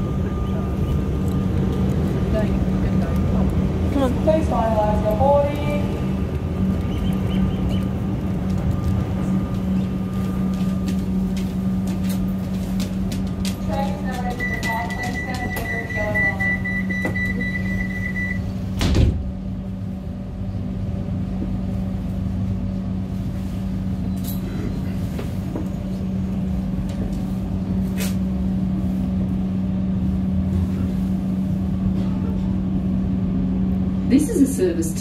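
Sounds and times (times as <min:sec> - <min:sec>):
train carriage hum: 0:00.0 - 0:35.0
high warning beep: 0:14.2 - 0:18.5
train doors shutting thud: 0:18.6 - 0:19.4.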